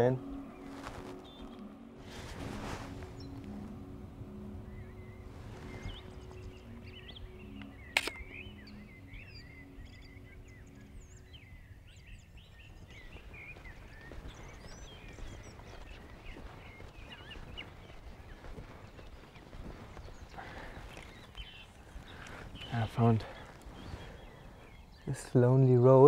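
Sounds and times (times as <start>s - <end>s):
birds chirping and singing: 0.0s - 26.0s
camera shutter click: 7.9s - 8.3s.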